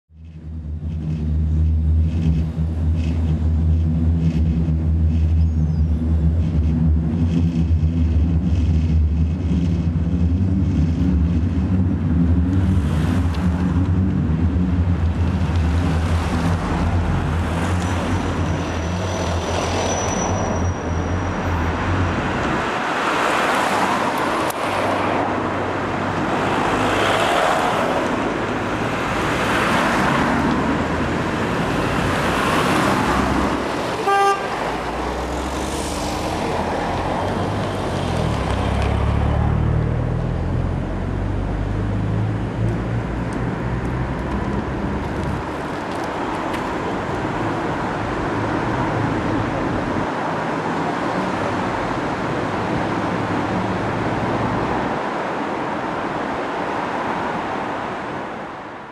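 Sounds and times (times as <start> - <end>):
vehicle engine humming: 0.1 - 56.0
cars driving past: 0.2 - 58.9
short high-pitched squeal: 18.4 - 21.7.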